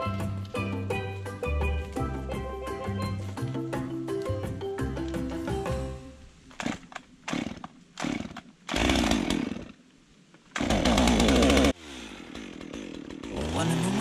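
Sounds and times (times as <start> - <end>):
chainsaw pull-cord tugs: 6.5 - 9.8, 10.5 - 14.0
chainsaw engine revving: 6.6 - 9.8, 10.6 - 14.0.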